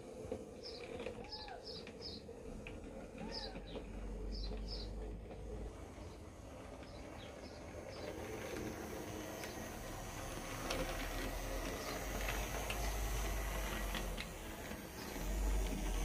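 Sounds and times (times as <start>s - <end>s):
small electric motor whirring: 0.0s - 16.0s
wheels clicking on rail joints: 0.0s - 16.0s.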